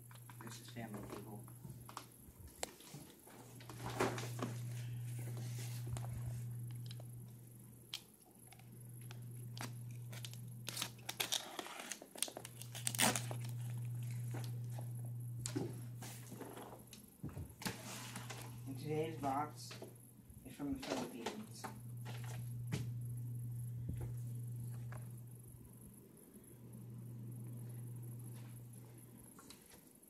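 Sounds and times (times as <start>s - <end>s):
low hum: 3.7s - 11.3s, 12.5s - 16.7s, 21.6s - 29.3s
cardboard box crinkling and tearing: 10.1s - 13.4s.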